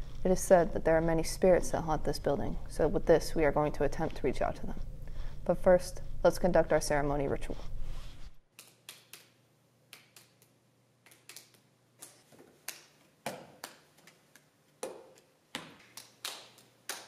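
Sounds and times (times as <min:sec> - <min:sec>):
hands clapping and slapping: 0:08.5 - 0:17.0.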